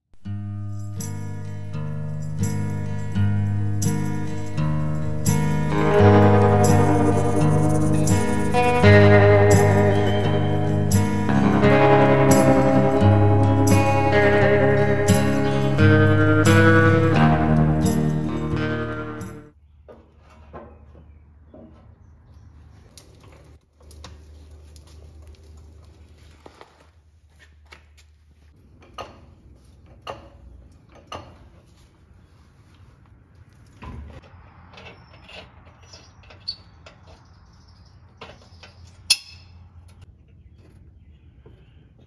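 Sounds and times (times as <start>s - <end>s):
metallic clinks of steel parts: 0.6s - 5.8s, 38.6s - 39.6s.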